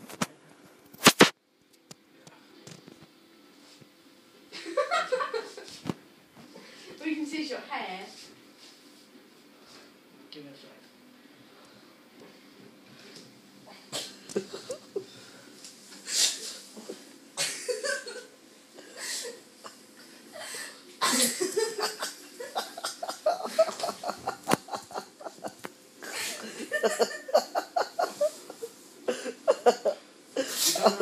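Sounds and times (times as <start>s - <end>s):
people laughing: 4.5s - 5.8s, 14.4s - 15.1s, 16.8s - 19.8s, 21.0s - 31.0s.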